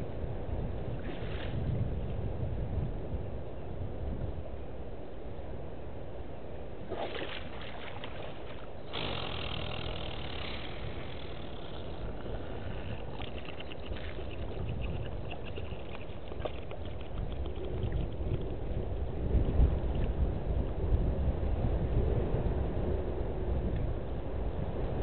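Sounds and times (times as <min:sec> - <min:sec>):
water splashing and sloshing: 0:01.0 - 0:01.8, 0:06.8 - 0:20.2.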